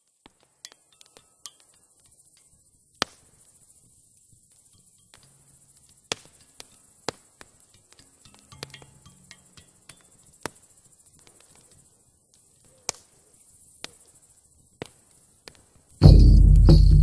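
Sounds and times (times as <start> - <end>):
faint hiss: 0.0 - 17.0
low hum: 16.0 - 17.0.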